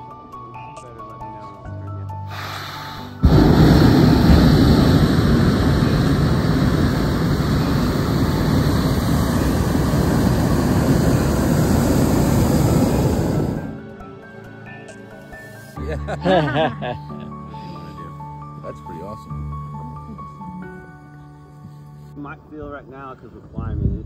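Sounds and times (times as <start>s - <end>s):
propane burner roaring: 2.3s - 13.9s.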